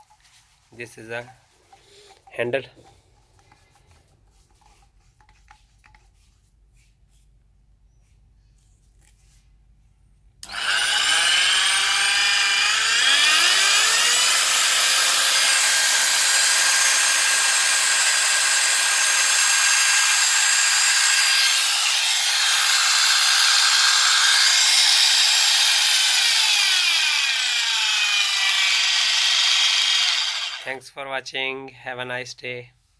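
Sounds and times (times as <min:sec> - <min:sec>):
polisher motor whining: 0:10.4 - 0:30.7.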